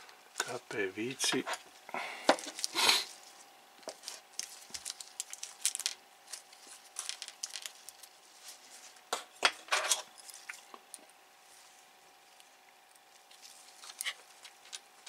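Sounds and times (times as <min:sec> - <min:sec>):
plastic parts being handled: 0:02.2 - 0:03.2, 0:03.8 - 0:11.0, 0:13.2 - 0:14.9
plastic bag crinkling: 0:02.4 - 0:09.0, 0:13.2 - 0:14.9.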